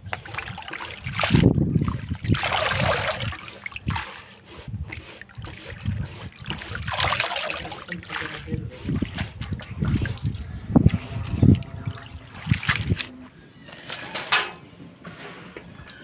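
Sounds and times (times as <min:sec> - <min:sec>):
water splashing and dripping: 0:00.0 - 0:04.4, 0:05.0 - 0:13.3
hands swishing potato in water: 0:00.1 - 0:13.1.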